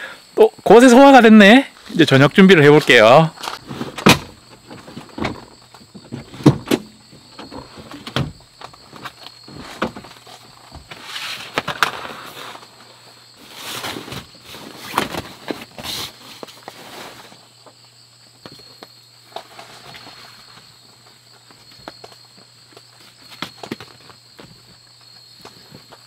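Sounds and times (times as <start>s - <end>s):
car seats clunking: 3.6s - 10.9s.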